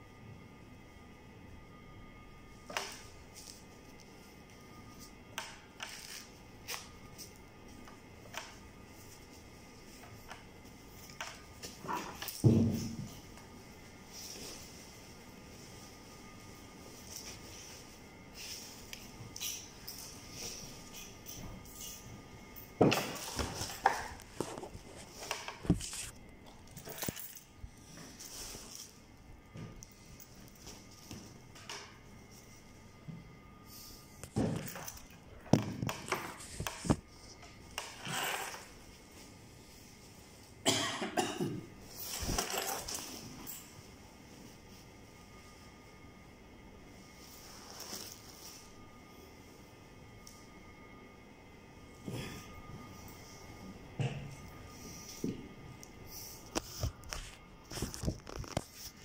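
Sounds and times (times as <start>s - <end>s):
curtain and plastic wrap rustling: 5.8s - 22.1s, 23.0s - 29.2s, 41.8s - 45.7s, 46.9s - 48.9s, 56.2s - 59.0s.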